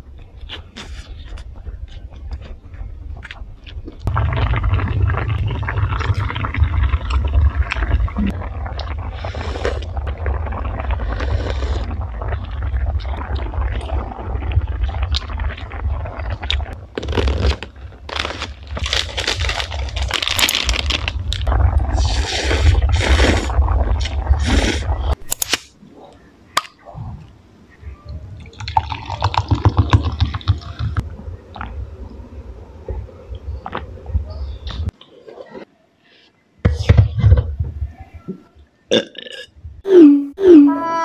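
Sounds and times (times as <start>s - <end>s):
boiling broth bubbling: 4.0s - 25.2s, 28.4s - 34.9s
slurping noodles and soup: 6.0s - 18.3s, 21.4s - 25.2s.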